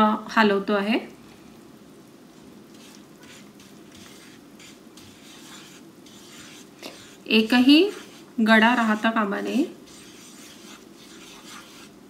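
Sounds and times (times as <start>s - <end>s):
faint sizzle: 0.0s - 12.0s
spatula scraping a frying pan: 2.7s - 12.0s.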